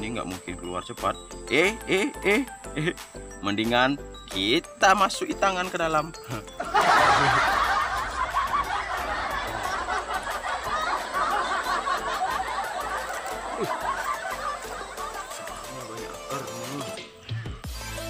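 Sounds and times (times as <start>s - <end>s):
crowd laughing and chuckling: 6.3s - 16.8s.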